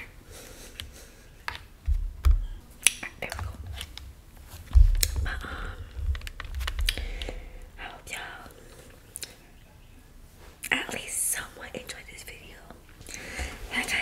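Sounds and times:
microphone handling clicks and taps: 0:01.8 - 0:02.6, 0:03.2 - 0:07.5
low thumps and rumble: 0:01.8 - 0:02.7, 0:04.6 - 0:07.9.

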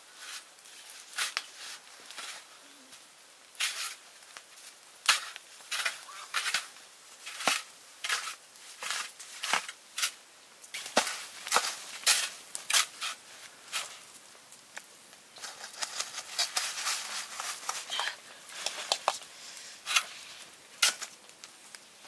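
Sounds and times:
shovel scraping snow: 0:03.6 - 0:04.0, 0:05.0 - 0:10.2, 0:10.8 - 0:14.0, 0:15.4 - 0:18.9, 0:19.6 - 0:21.1.

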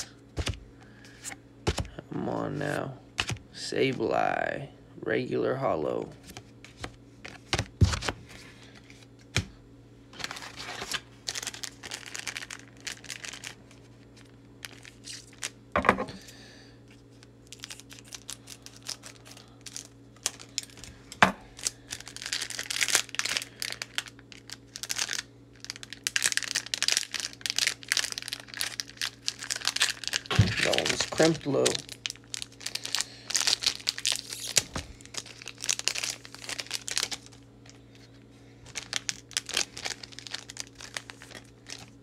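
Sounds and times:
foil wrapper crinkling and tearing: 0:10.1 - 0:15.6, 0:16.2 - 0:42.0.

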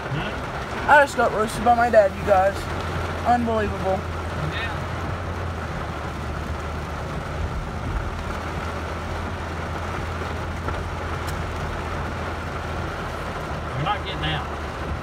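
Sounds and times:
heavy rain on vehicle roof: 0:00.0 - 0:15.0
truck engine running: 0:00.0 - 0:15.0.

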